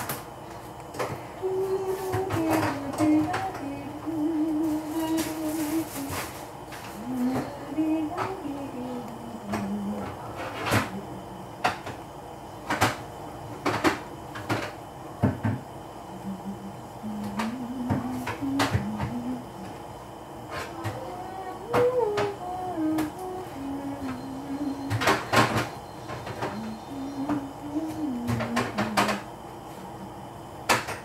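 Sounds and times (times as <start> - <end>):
person humming a slow tune: 1.3 - 11.6, 16.0 - 19.8, 20.5 - 25.5, 26.1 - 30.3.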